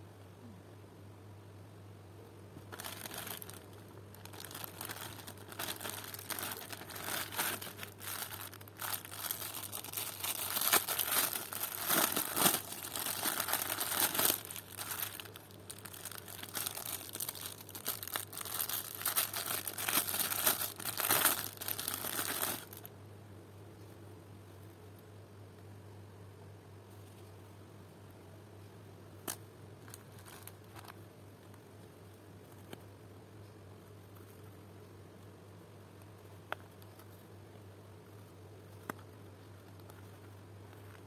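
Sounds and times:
faint low hum: 0:00.0 - 0:41.0
plastic bag crinkling: 0:02.7 - 0:22.9, 0:29.3 - 0:31.0.

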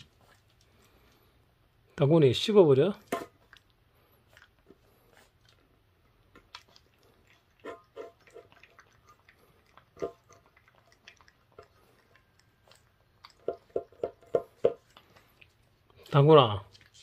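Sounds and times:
puppy licking metal bowl: 0:04.3 - 0:17.0.

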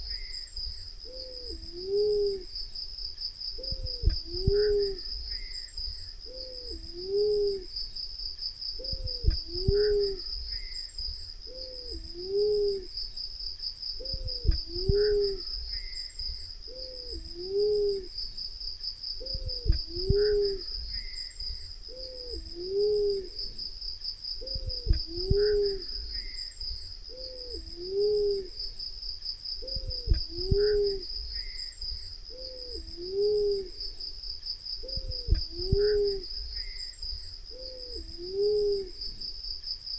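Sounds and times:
high pulsing insect drone: 0:00.0 - 0:39.9
dove cooing: 0:01.0 - 0:02.6, 0:03.6 - 0:05.6, 0:06.2 - 0:07.8, 0:08.8 - 0:10.7, 0:11.4 - 0:13.0, 0:14.0 - 0:16.0, 0:16.7 - 0:18.2, 0:19.2 - 0:21.2, 0:21.9 - 0:23.6, 0:24.4 - 0:26.4, 0:27.1 - 0:28.7, 0:29.6 - 0:31.6, 0:32.3 - 0:34.0, 0:34.8 - 0:36.8, 0:37.5 - 0:39.2.

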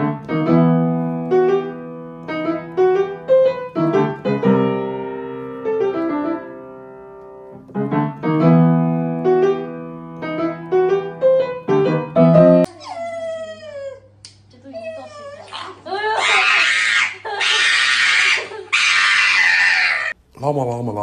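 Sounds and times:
gentle piano melody: 0:00.0 - 0:12.7.

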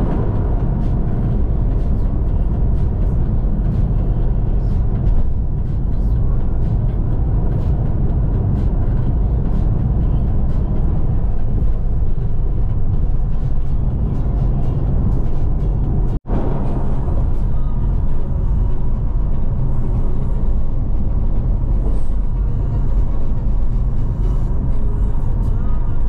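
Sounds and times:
road and engine rumble: 0:00.0 - 0:26.0.

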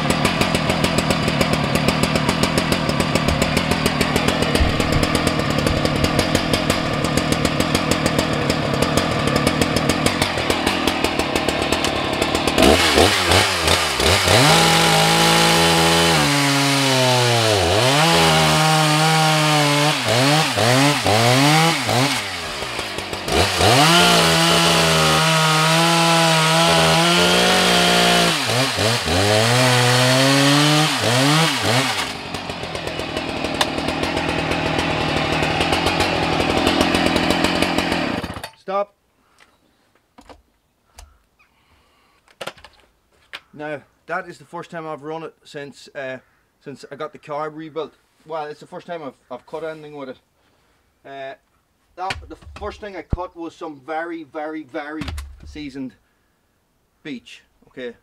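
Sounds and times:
chainsaw running and cutting wood: 0:00.0 - 0:38.5.

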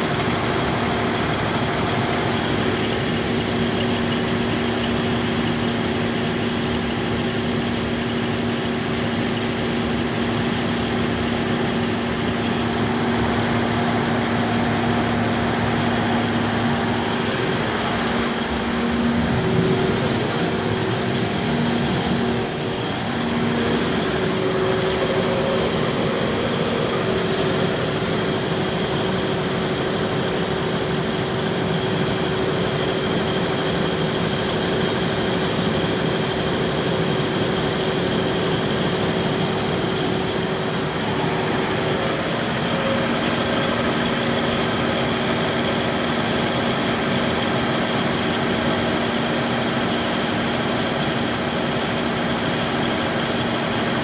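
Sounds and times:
diesel generator engine hum: 0:00.0 - 0:54.0.

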